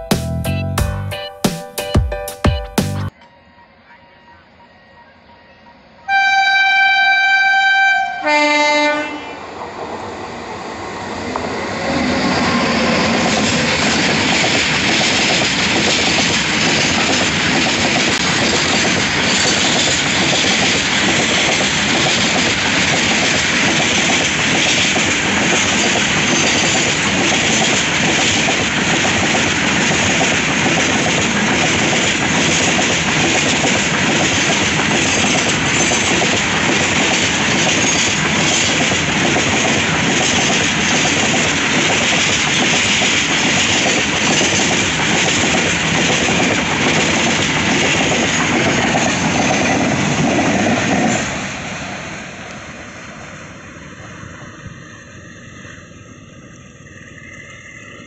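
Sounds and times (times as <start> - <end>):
locomotive horn: 6.1 - 9.4
train wheels rumbling and clattering: 9.5 - 53.4.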